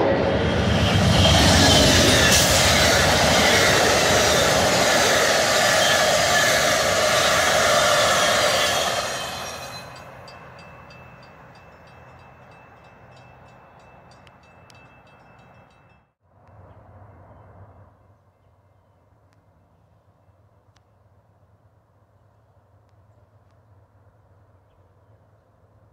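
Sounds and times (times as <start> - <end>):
train passing on rails: 0.0 - 18.8
quiet outdoor background: 0.0 - 25.9
high tone with regular ticks: 9.9 - 16.6.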